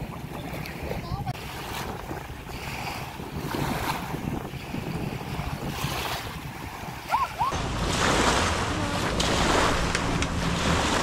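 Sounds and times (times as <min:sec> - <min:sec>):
rushing water: 0:00.0 - 0:11.0
wind on microphone: 0:00.0 - 0:11.0
low motor drone: 0:07.5 - 0:11.0.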